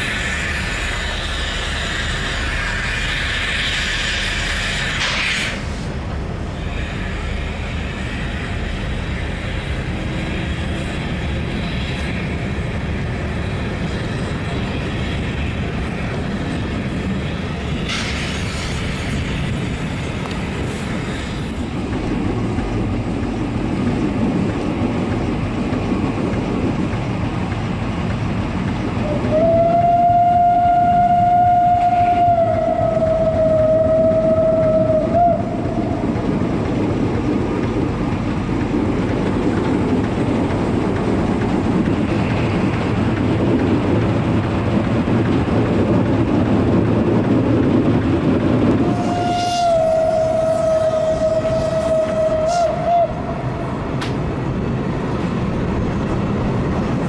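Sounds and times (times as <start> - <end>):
steam train rolling on track: 0.0 - 57.0
steam whistle long blast: 29.0 - 35.6, 48.8 - 53.4.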